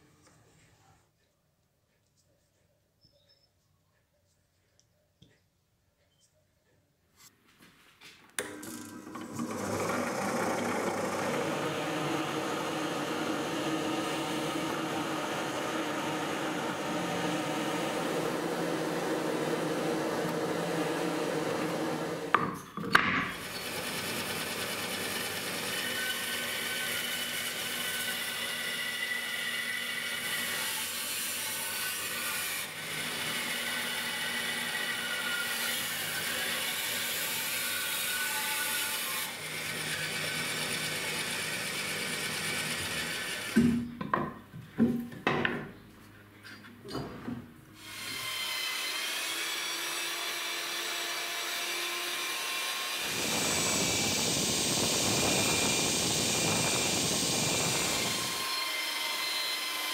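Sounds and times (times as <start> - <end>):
drill press boring wood: 8.4 - 22.4, 23.2 - 43.7, 47.8 - 59.9
bandsaw cutting board: 8.4 - 43.9, 47.8 - 59.9.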